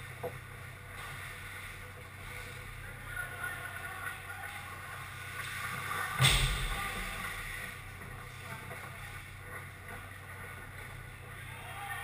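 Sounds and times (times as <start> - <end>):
steady low hum: 0.0 - 12.0
sharp loud knock: 6.2 - 6.9.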